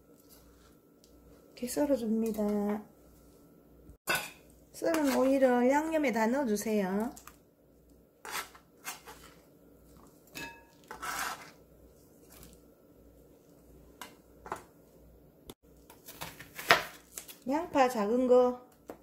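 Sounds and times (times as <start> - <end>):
knife scraping cutting board: 8.2 - 9.4, 10.8 - 11.6.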